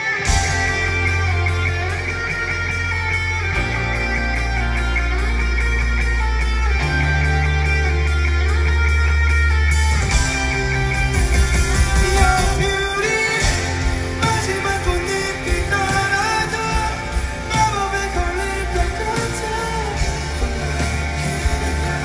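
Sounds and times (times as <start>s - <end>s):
drums and cymbals: 0.0s - 4.6s, 9.7s - 22.0s
bass guitar: 0.0s - 22.0s
electric guitar: 0.0s - 22.0s.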